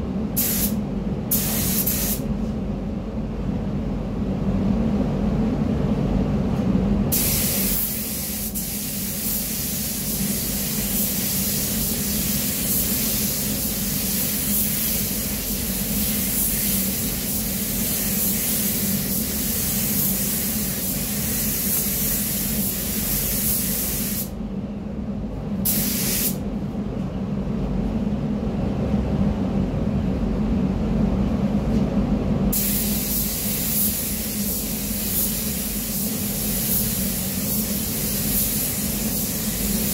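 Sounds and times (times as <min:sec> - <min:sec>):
paint spray gun hissing: 0:00.4 - 0:02.2, 0:07.1 - 0:24.3, 0:25.7 - 0:26.4, 0:32.5 - 0:39.9.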